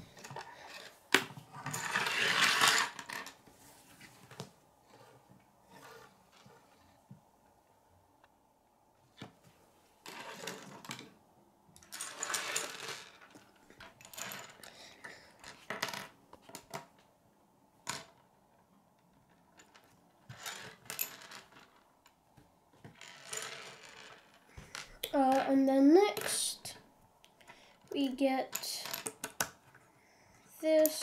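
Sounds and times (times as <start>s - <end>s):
plastic pieces clattering on wood: 0.2s - 3.4s, 11.8s - 14.7s.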